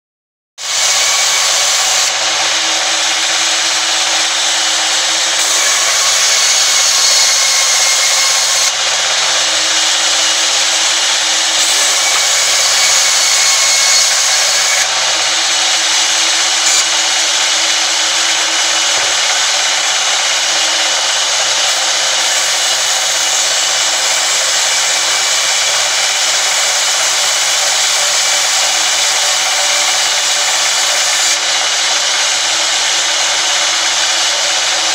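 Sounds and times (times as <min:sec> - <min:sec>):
band saw ripping wood: 0:11.5 - 0:17.3.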